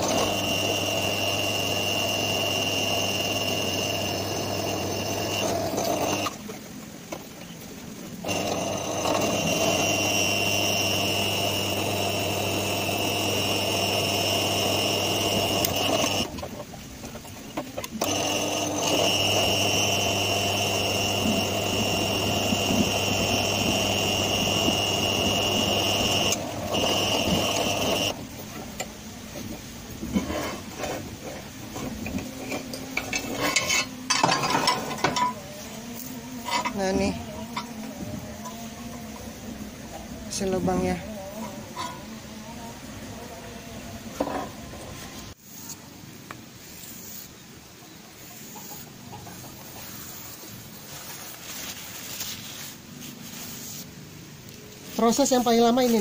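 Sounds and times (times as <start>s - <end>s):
drill press humming and whining: 0.0s - 6.4s, 8.2s - 16.4s, 17.8s - 28.3s
metal chips scraping and clinking: 32.4s - 35.4s.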